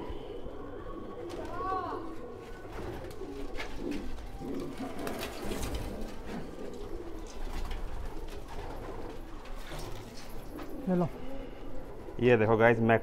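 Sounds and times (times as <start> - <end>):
pigeons cooing: 0.0 - 13.0
wings rustling and flapping: 0.6 - 12.2.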